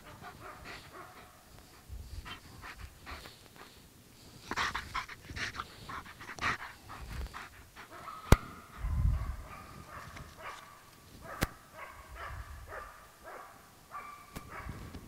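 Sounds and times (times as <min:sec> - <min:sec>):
dog panting hard: 0:00.0 - 0:03.8, 0:04.4 - 0:08.8.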